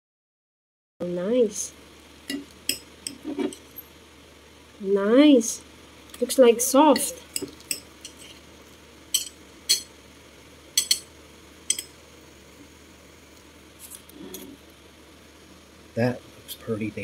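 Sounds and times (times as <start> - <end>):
knife clinking against plate: 9.1 - 9.9, 10.8 - 11.1, 11.7 - 11.9.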